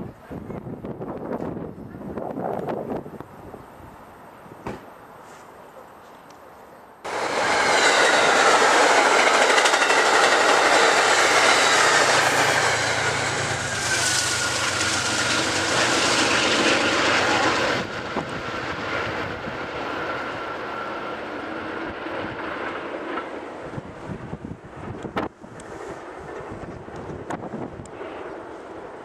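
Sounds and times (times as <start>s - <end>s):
diesel locomotive engine humming: 7.0s - 28.7s
train wheels clattering over rails: 7.1s - 19.4s.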